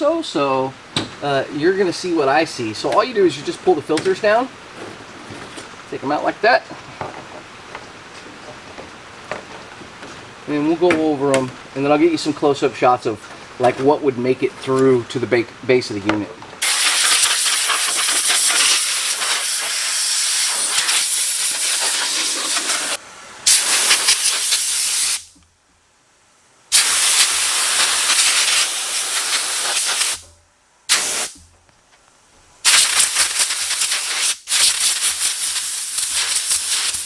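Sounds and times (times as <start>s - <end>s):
compressed air blow gun hissing: 16.6s - 25.4s, 26.7s - 30.2s, 30.9s - 31.4s, 32.6s - 37.0s.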